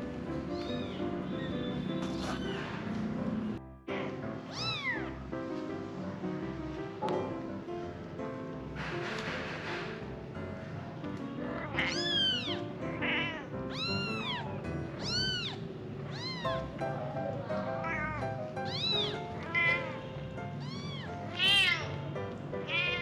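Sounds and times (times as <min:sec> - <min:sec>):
light background music: 0:00.0 - 0:23.0
kittens mewing: 0:00.4 - 0:02.9, 0:03.9 - 0:05.2, 0:11.3 - 0:16.8, 0:17.6 - 0:22.0, 0:22.6 - 0:23.0.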